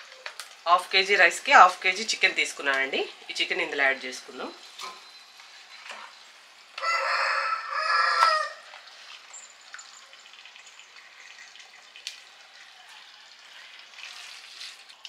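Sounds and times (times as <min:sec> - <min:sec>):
faint sizzling in a pot: 0:00.0 - 0:15.0
rooster crowing: 0:06.8 - 0:08.8.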